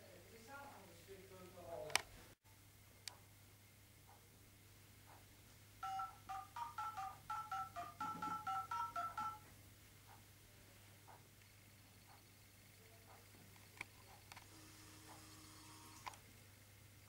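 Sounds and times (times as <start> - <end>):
phone keypad touch tones: 5.8 - 9.4.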